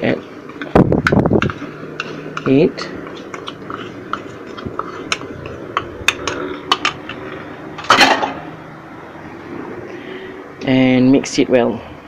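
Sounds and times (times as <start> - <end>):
clattering scrape: 2.0 - 8.5.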